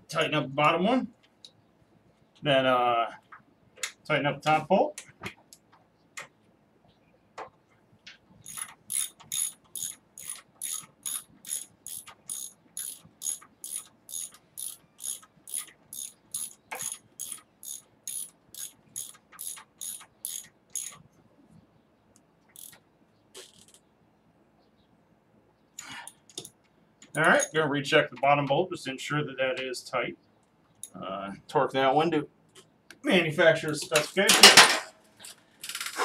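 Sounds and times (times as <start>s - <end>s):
hand ratchet clicking: 8.4s - 21.0s, 22.5s - 22.8s.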